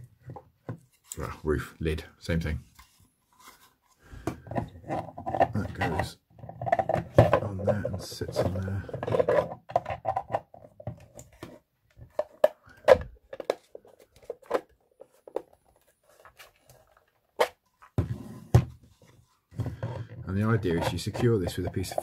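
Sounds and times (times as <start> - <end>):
plastic parts clicking and tapping: 4.2 - 18.7, 19.5 - 22.0.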